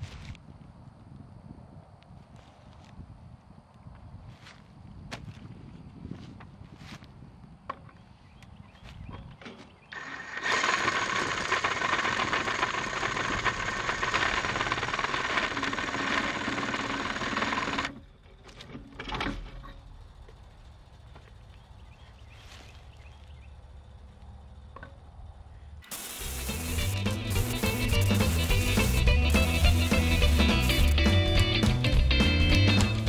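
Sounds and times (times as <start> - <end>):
cordless drill boring through steel: 9.9 - 18.0.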